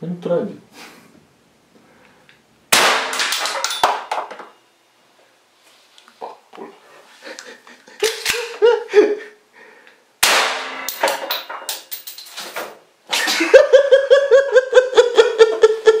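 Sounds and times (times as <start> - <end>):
pistol shot: 2.7 - 3.6, 10.2 - 11.0
high-pitched laughter: 13.1 - 16.0.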